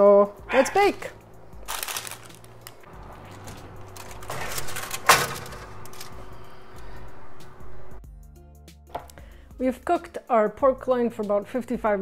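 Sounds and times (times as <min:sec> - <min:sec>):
oven rack and door clattering: 0:03.0 - 0:06.3.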